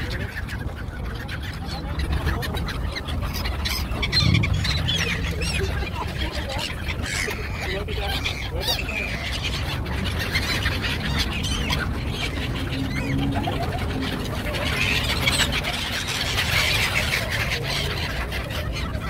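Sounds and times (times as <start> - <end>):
gulls calling: 0.0 - 19.0
low rumble: 3.7 - 6.6.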